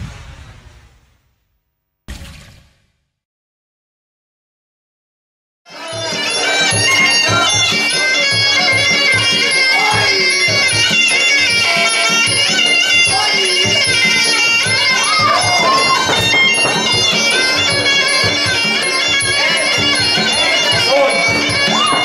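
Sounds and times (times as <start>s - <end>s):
reedy oboe-like melody: 5.7s - 22.0s
hand drums beat: 11.6s - 22.0s.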